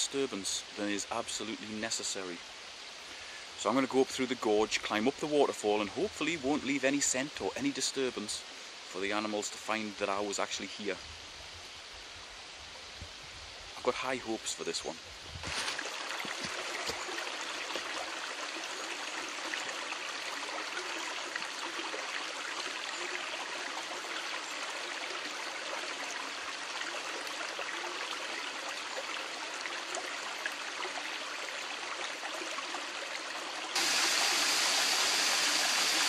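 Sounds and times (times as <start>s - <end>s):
stream running over rocks: 0.0s - 36.0s
small waterfall rushing: 14.9s - 36.0s.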